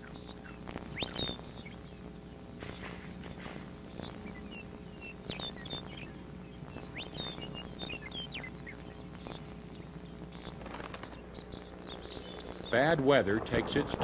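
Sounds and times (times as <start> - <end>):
small birds chirping: 0.0 - 14.0
steady low hum: 0.0 - 14.0.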